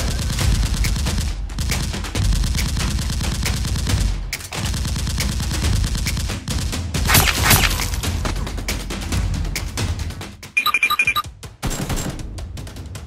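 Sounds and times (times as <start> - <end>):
rapid automatic gunfire: 0.0 - 8.4.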